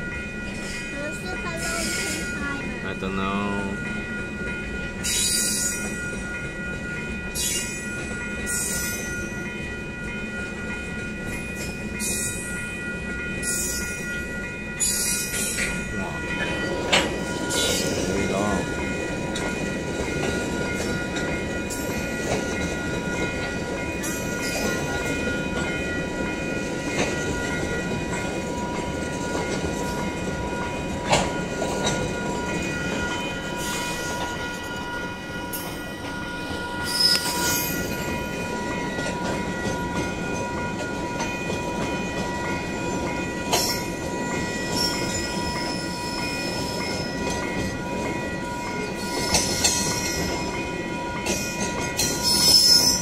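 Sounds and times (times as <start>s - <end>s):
high ringing tone: 0.0s - 53.0s
train wheels rumbling on rails: 0.0s - 53.0s
wheels clicking over rail joints: 14.8s - 34.7s, 35.5s - 53.0s.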